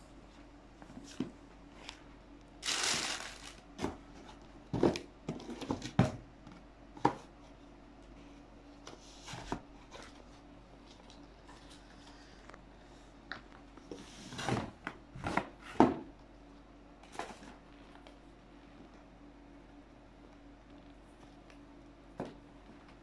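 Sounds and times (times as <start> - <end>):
wrapping rustling: 2.6 - 3.6.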